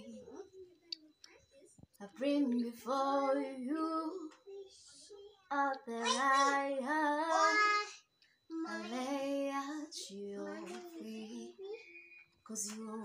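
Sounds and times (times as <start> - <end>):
woman singing unaccompanied: 0.0 - 0.3, 2.0 - 4.4, 5.5 - 7.7, 8.5 - 11.8, 12.4 - 13.0.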